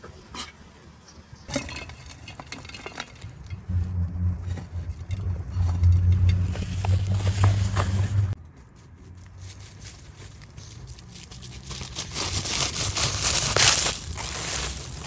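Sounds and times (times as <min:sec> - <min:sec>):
steady low rumble: 0:03.2 - 0:08.4.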